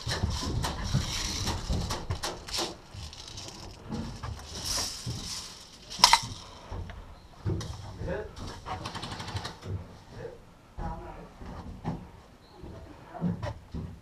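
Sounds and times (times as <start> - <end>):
gear rattling against walls: 0.0 - 9.9.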